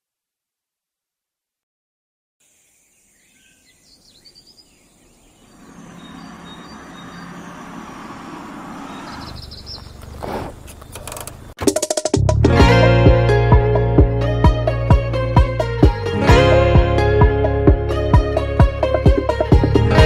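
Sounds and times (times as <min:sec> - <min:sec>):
faint bird chirps: 0:02.4 - 0:11.0
steady environmental rush: 0:04.4 - 0:11.6.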